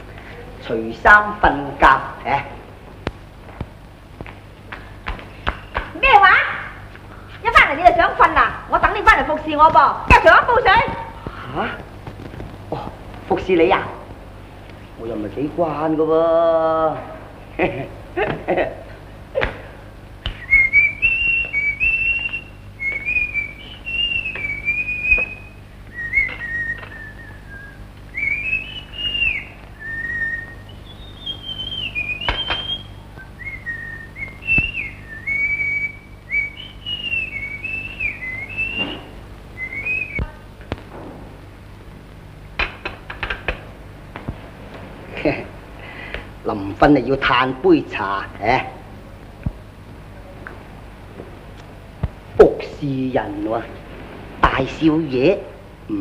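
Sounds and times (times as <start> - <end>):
man whistling a tune: 20.3 - 40.2.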